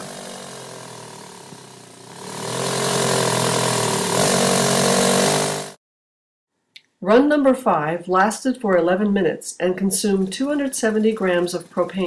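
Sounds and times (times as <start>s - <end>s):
engine running with whine: 0.0s - 5.8s.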